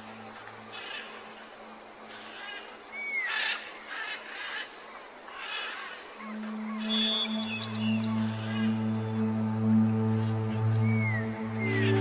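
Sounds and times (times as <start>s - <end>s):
insects hissing: 0.0s - 12.0s
low music drone: 6.2s - 12.0s.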